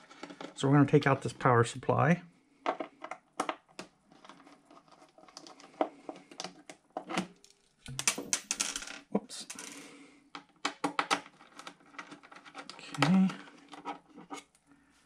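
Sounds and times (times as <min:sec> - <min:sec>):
scratchy handling noise: 0:03.8 - 0:08.3, 0:11.2 - 0:14.6.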